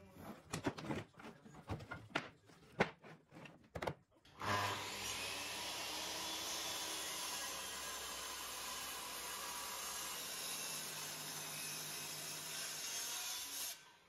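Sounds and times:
floorboards knocking together: 0.2 - 4.0.

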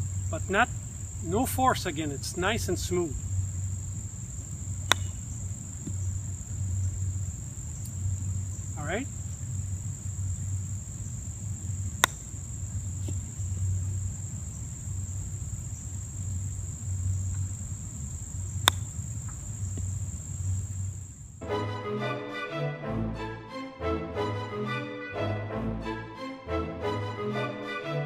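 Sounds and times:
high insect drone: 0.0 - 21.4
golf club striking ball: 4.8 - 6.2, 11.9 - 13.3, 18.5 - 20.0
music: 21.4 - 28.0.

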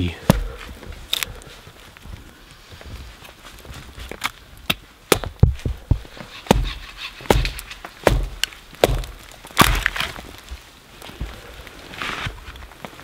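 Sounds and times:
wood splitting: 0.2 - 1.4, 4.0 - 10.6
axe chopping wood: 0.3 - 0.6, 4.7 - 10.2.

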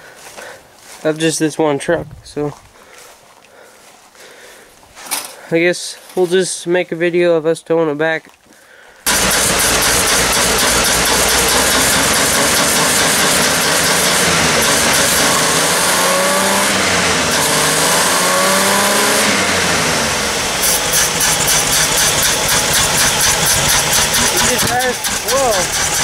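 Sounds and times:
pickup engine revving and idling: 9.1 - 26.0.

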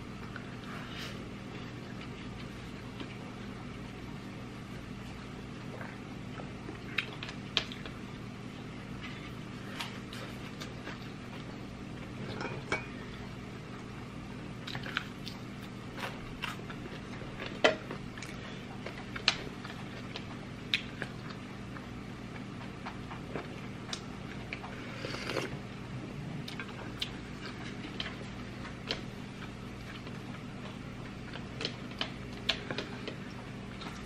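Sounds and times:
low steady hum: 0.0 - 34.0
sip from a spoon: 24.9 - 25.6
chewing clicks and smacks: 29.8 - 34.0.

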